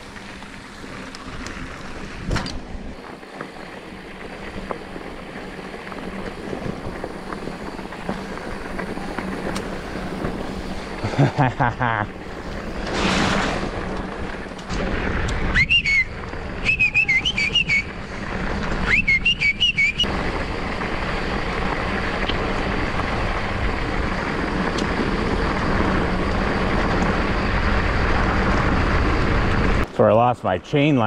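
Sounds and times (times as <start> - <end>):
bike tyres on gravel: 0.0 - 31.0
high chirping whistle-like notes: 15.5 - 18.0, 18.8 - 20.1.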